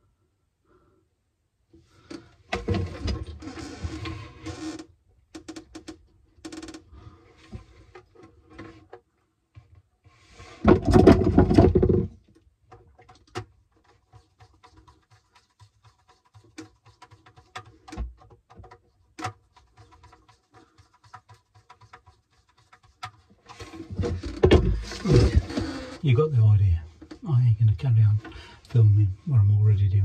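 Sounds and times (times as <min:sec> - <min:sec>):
cables rustling and rubbing: 0:12.8 - 0:26.0.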